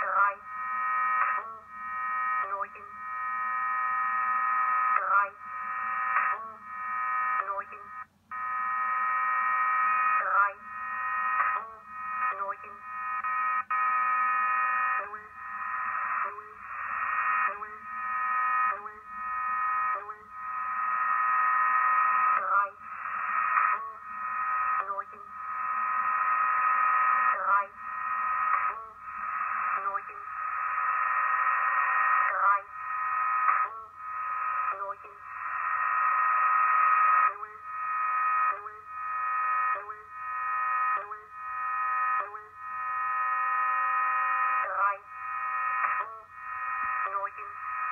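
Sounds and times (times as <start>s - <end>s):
monotone voice reading numbers: 2.4s - 3.0s, 7.4s - 8.0s, 11.6s - 12.8s, 24.8s - 25.4s, 28.6s - 30.4s, 32.3s - 32.8s, 34.6s - 35.3s, 44.6s - 45.1s, 47.0s - 47.9s.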